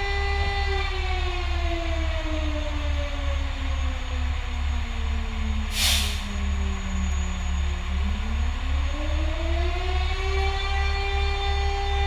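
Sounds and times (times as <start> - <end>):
fire truck siren: 0.0 - 12.0
hiss of air: 5.7 - 6.4.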